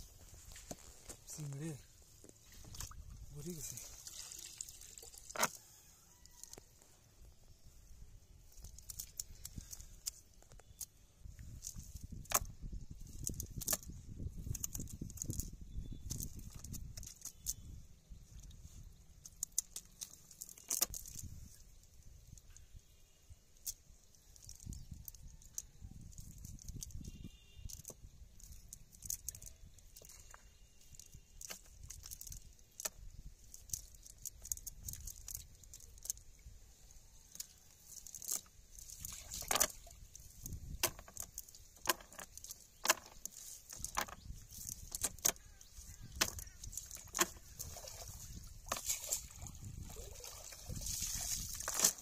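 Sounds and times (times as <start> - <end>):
net knocking against wooden hull: 40.7 - 44.2.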